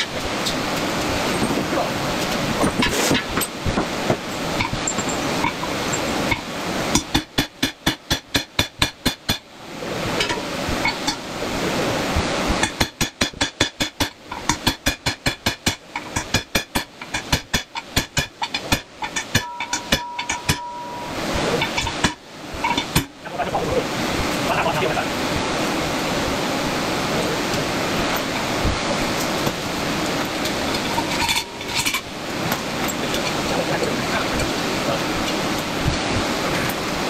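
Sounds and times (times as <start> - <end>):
rapid sharp knocks: 6.9 - 9.5, 12.6 - 20.7
brief steady tone: 19.4 - 21.3.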